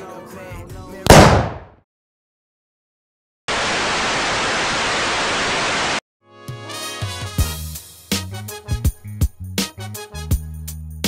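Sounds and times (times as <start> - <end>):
music: 0.0 - 1.1, 6.2 - 11.0.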